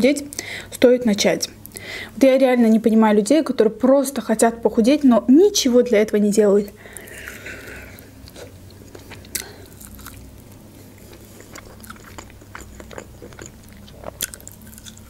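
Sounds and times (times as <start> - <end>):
person chewing chicken wing: 6.9 - 15.0.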